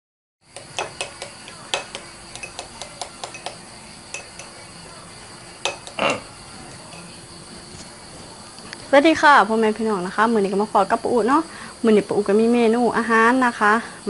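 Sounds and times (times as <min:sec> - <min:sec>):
spoon clinking against ceramic bowl: 0:00.6 - 0:04.8, 0:05.6 - 0:07.2.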